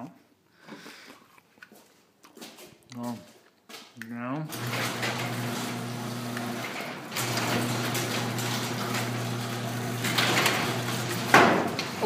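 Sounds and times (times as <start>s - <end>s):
garage door motor hum: 4.5s - 12.0s
garage door rolling and rattling: 4.5s - 12.0s.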